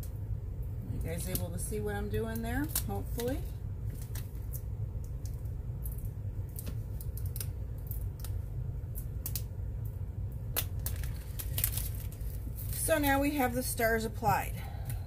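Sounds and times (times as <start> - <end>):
steady low hum: 0.0 - 15.0
plastic sheet crackling: 2.4 - 4.7, 10.5 - 13.2.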